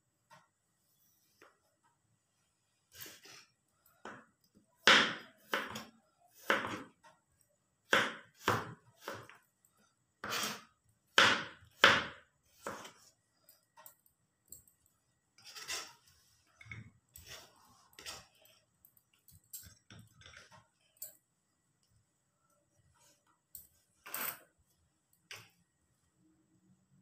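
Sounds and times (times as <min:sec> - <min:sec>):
knife slicing garlic: 0:04.8 - 0:06.9, 0:07.9 - 0:09.4, 0:10.2 - 0:13.0.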